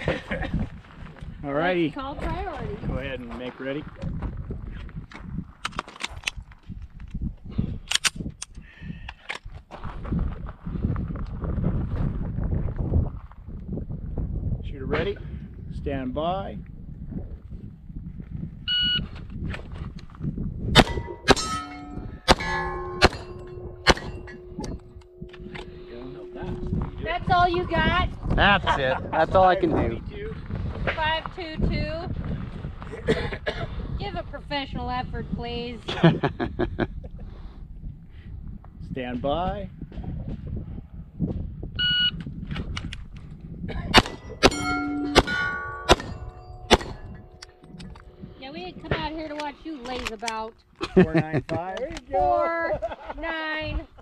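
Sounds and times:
pistol shots: 0:20.8 - 0:25.8, 0:44.0 - 0:47.6
steel plate ringing: 0:20.8 - 0:29.4, 0:44.0 - 0:49.2
shot timer beep: 0:44.0 - 0:48.2.

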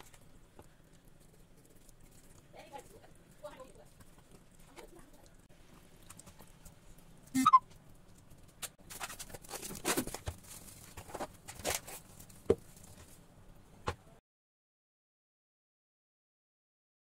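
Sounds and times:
loud squeak: 0:07.4 - 0:07.6
cling film crinkling: 0:07.7 - 0:13.2.

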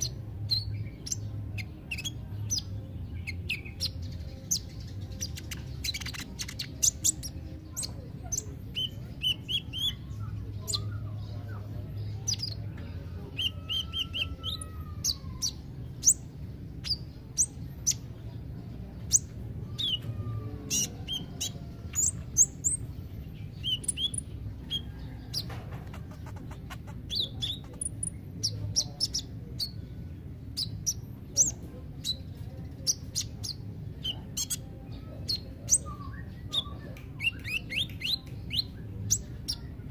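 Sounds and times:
bird singing high chirps and trills: 0:00.0 - 0:39.9
low steady background hum: 0:00.0 - 0:39.9.

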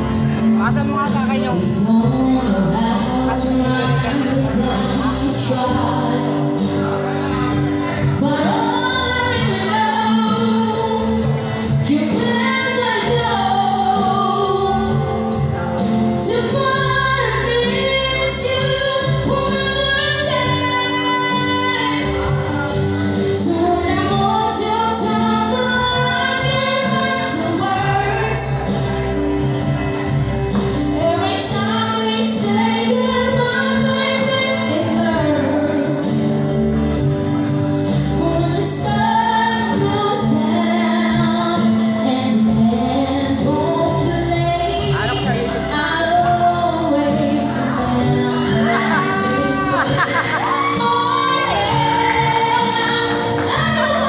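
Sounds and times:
woman singing into microphone: 0:00.0 - 0:29.8, 0:30.5 - 0:54.0
instrumental accompaniment: 0:00.0 - 0:54.0.

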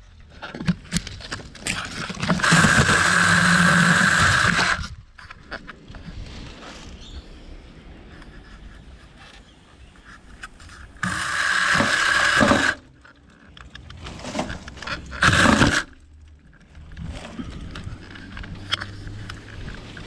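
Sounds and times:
electric chainsaw whining: 0:02.2 - 0:04.9, 0:11.0 - 0:12.9, 0:15.0 - 0:16.0.

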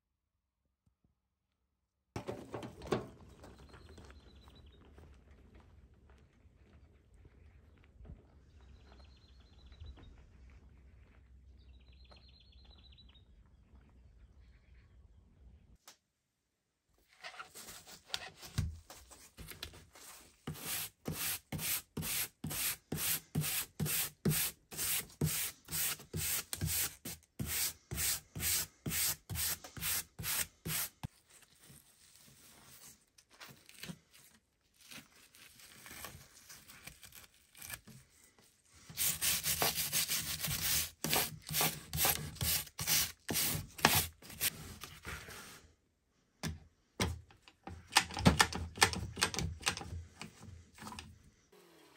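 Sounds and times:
rubbing strokes on wood: 0:20.5 - 0:31.1, 0:38.9 - 0:44.5.

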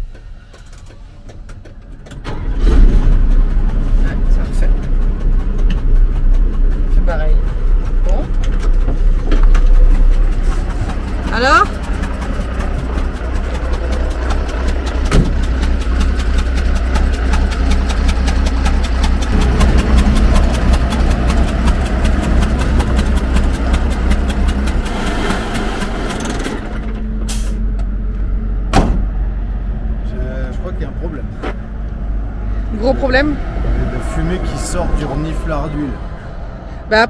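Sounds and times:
sharp engine knocks: 0:00.0 - 0:27.9, 0:28.7 - 0:29.3
diesel engine running: 0:00.0 - 0:37.0
rapid even engine ticking: 0:00.5 - 0:26.9.

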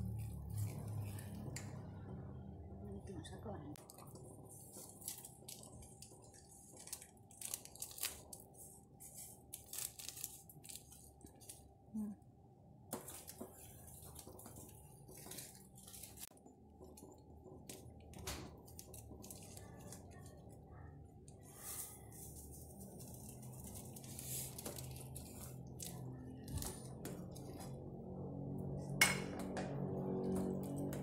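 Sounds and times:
plastic sachets crinkling: 0:03.8 - 0:11.7, 0:13.1 - 0:16.3, 0:16.9 - 0:20.6, 0:21.4 - 0:27.4.

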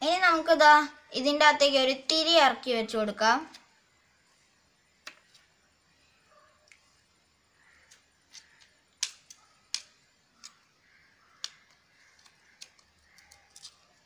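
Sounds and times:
plastic sheet clicking and crackling: 0:08.3 - 0:10.6, 0:11.4 - 0:14.0.

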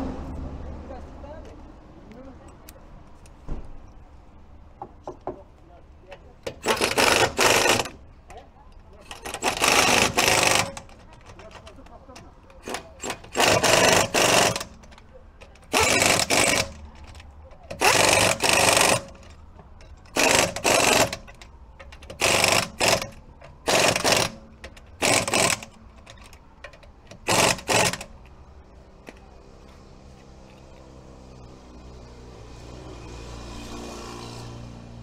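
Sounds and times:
pneumatic impact wrench bursts: 0:06.5 - 0:08.0, 0:09.1 - 0:11.0, 0:12.6 - 0:14.8, 0:15.6 - 0:19.3, 0:20.1 - 0:21.4, 0:22.0 - 0:26.3, 0:27.1 - 0:28.2.

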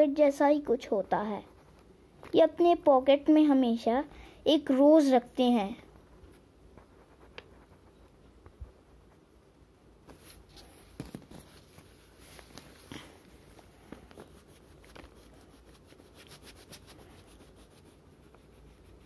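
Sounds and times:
crayon scratching on paper: 0:06.8 - 0:08.2, 0:14.0 - 0:19.0.

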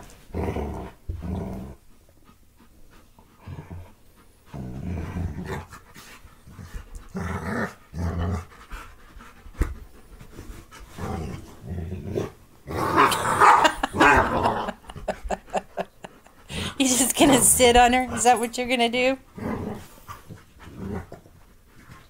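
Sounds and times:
dogs play-growling: 0:00.0 - 0:18.6, 0:19.2 - 0:22.0.

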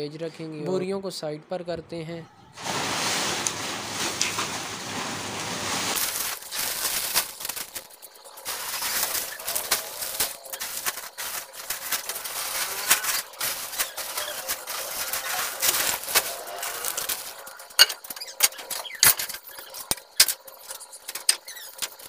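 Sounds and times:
broom sweeping concrete floor: 0:02.6 - 0:07.5, 0:08.4 - 0:17.4
plastic sacks rustling and crumpling: 0:02.6 - 0:22.0.

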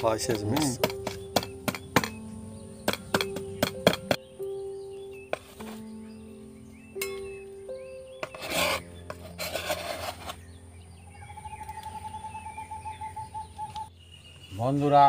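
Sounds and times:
ginger scraped on steel plate: 0:08.2 - 0:10.4.

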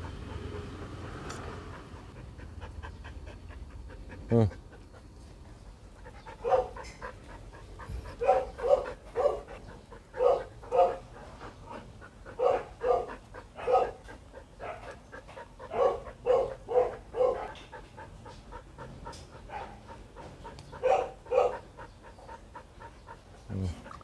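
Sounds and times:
dog barking: 0:06.4 - 0:06.8, 0:08.2 - 0:09.5, 0:10.2 - 0:11.0, 0:12.4 - 0:14.0, 0:14.6 - 0:15.0, 0:15.7 - 0:17.6, 0:19.5 - 0:19.8, 0:20.8 - 0:21.6.

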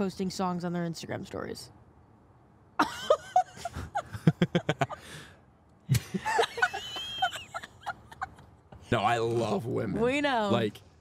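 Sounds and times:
woman laughing: 0:02.8 - 0:05.1, 0:05.9 - 0:08.5.

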